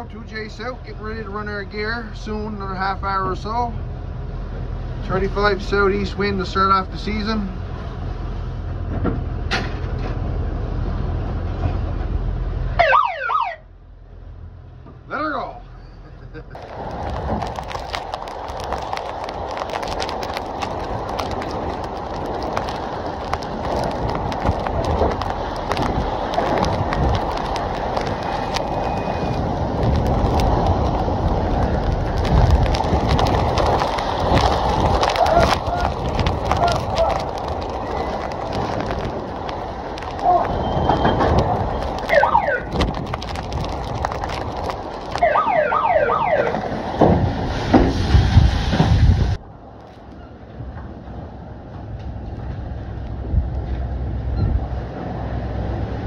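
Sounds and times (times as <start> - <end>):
rough sea washing against hull: 16.6 - 45.3, 46.6 - 49.4
short sharp crackles: 16.6 - 45.6
wind buffeting microphone: 16.6 - 49.4, 52.2 - 56.0
sea rushing and splashing: 46.2 - 49.4.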